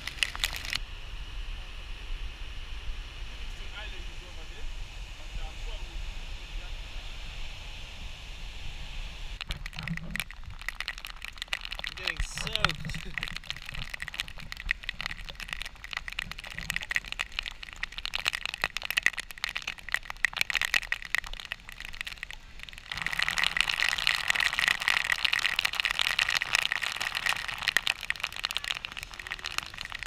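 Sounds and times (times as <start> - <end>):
water spray pattering like rain: 0.0 - 0.8, 9.4 - 30.0
steady hiss: 0.0 - 30.0.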